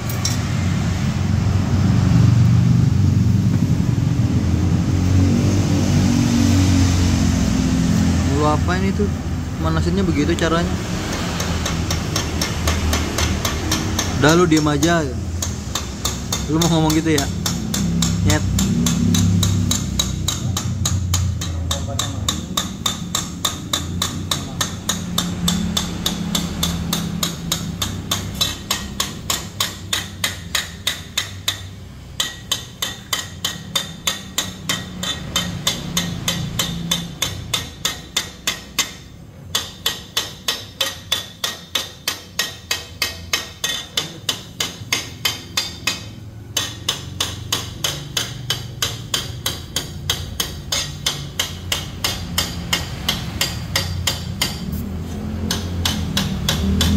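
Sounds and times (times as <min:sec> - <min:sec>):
hammer striking metal pipe: 0:00.0 - 0:01.8, 0:06.8 - 0:56.9.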